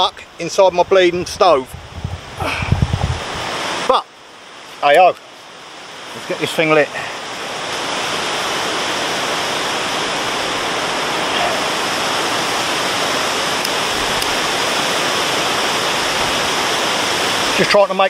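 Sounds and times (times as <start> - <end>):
wind buffeting tarp and microphone: 0.0 - 3.9
strong wind rushing through trees: 0.0 - 18.0.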